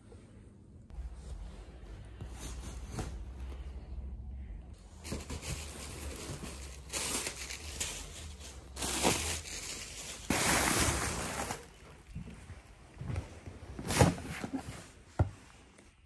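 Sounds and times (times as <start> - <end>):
plastic packing crinkling: 5.0 - 12.4.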